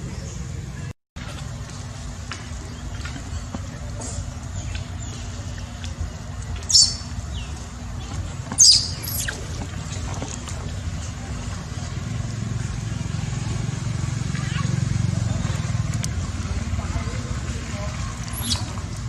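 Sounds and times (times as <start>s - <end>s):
monkey high-pitched squeals: 8.6s - 9.4s, 14.4s - 14.8s, 18.3s - 18.8s.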